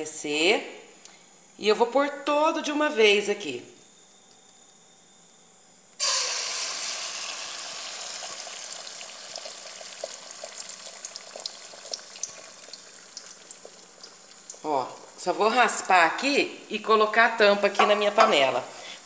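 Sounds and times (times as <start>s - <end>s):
egg mixture sizzling in hot oil: 6.0s - 15.2s.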